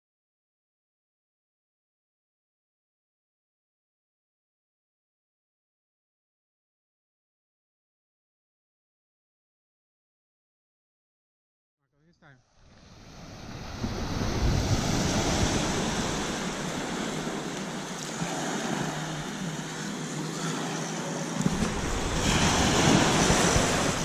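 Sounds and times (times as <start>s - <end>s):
ocean surf washing onto beach: 12.6s - 24.0s
wind buffeting microphone: 12.9s - 20.0s, 21.4s - 24.0s.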